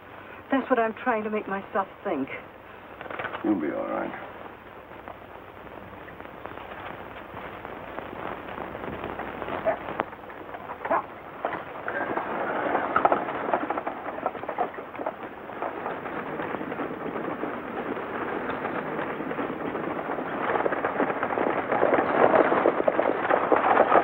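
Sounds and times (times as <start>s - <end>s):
horses hoofbeats at a run: 4.8s - 24.0s
stagecoach rattling: 8.9s - 24.0s.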